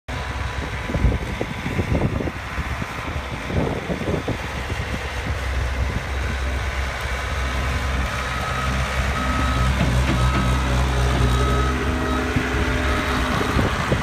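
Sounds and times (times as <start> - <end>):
diesel engine under load: 0.1 - 14.0
backup alarm beeps: 8.3 - 12.4.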